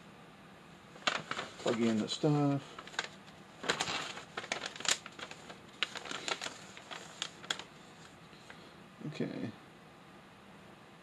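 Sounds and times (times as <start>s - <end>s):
paper crinkling and crackling: 1.0s - 8.6s.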